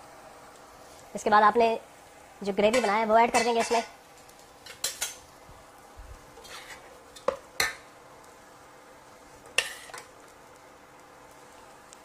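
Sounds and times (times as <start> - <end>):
ladle scraping metal pot: 6.4 - 6.9.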